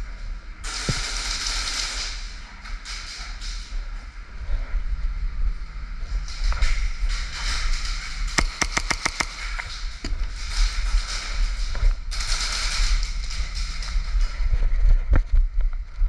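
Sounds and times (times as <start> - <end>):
low rumble and hiss: 0.0 - 8.4
airsoft gun shots: 8.4 - 9.7.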